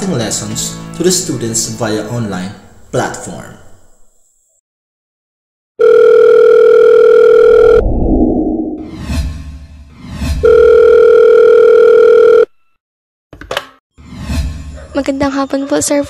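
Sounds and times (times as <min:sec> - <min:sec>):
telephone line tone: 0:05.8 - 0:07.8, 0:10.5 - 0:12.6
low rumble: 0:07.6 - 0:09.8.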